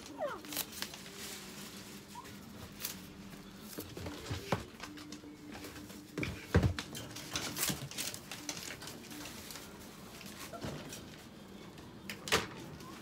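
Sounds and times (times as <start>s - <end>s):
bare feet on crinkling tarp: 0.0s - 3.4s.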